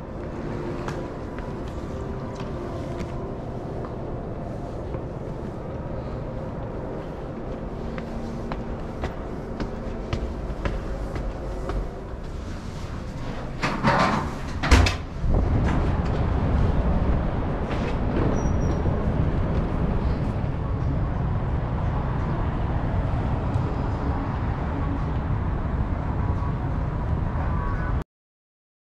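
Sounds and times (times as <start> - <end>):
passing traffic: 15.2 - 27.8.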